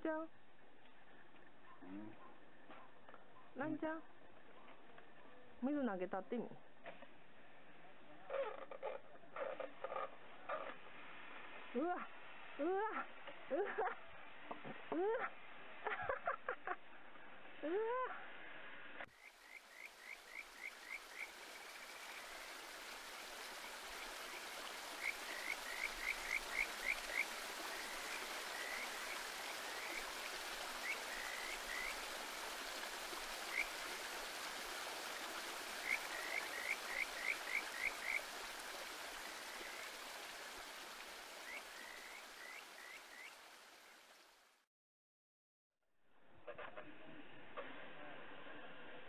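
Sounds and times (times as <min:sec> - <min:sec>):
frogs chirping: 0:19.1 - 0:34.1, 0:34.9 - 0:43.4
flowing water rushing: 0:19.1 - 0:44.6.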